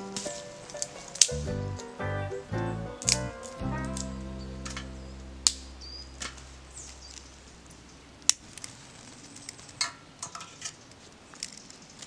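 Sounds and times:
acoustic guitar chord strummed: 0.0 - 6.8.

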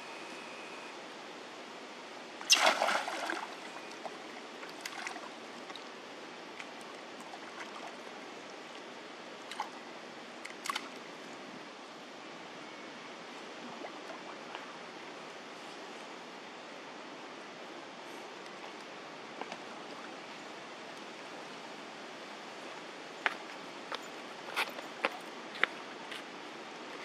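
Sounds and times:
steady background hiss: 0.0 - 27.0
water splashing: 2.5 - 5.8.

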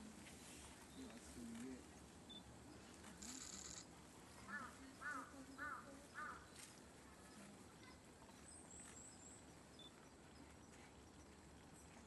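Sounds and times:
faint crow cawing: 4.4 - 6.6
small birds high calls: 4.4 - 6.7.

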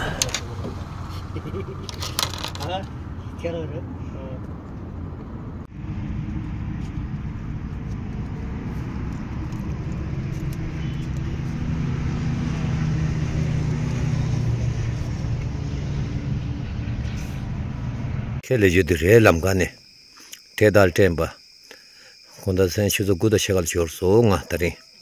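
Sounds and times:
vehicle interior rumble: 0.0 - 18.4.

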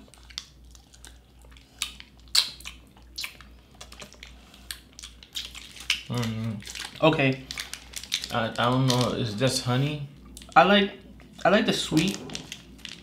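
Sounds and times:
wet mouth sucking and smacking: 0.0 - 7.0.

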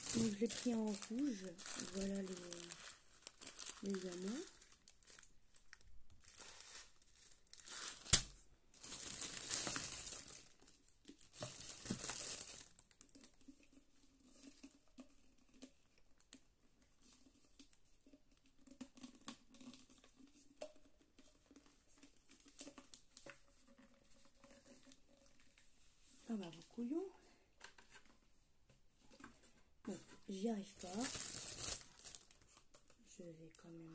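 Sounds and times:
plastic bag crinkling: 0.0 - 13.6, 29.9 - 33.9.

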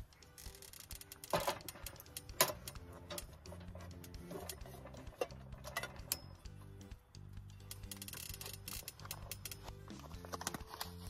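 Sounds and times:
soft background music: 0.0 - 11.0
sharp clicks: 0.2 - 3.3, 7.5 - 11.0.

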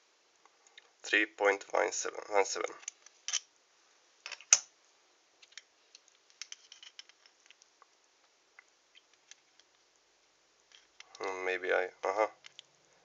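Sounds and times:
small clicks and scrapes: 5.4 - 7.9, 8.6 - 9.9, 10.7 - 11.2.

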